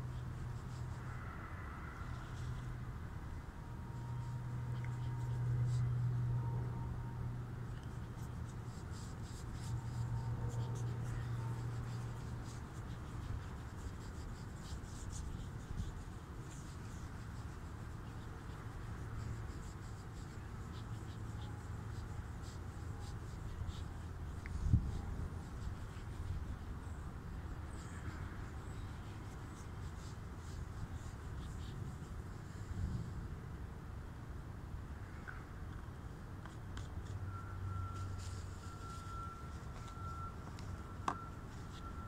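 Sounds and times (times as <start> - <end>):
fingers rubbing plastic lens: 0.0 - 1.3, 2.0 - 2.8, 3.6 - 32.6, 36.4 - 42.0
low hum: 0.0 - 14.2.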